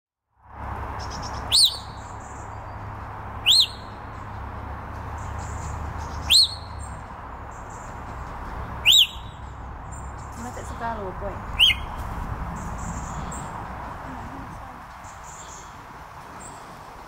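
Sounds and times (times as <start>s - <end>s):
steady background noise: 0.5s - 17.0s
parrot whistled chirps: 3.4s - 3.9s, 6.2s - 6.7s, 8.8s - 9.4s, 11.6s - 11.9s.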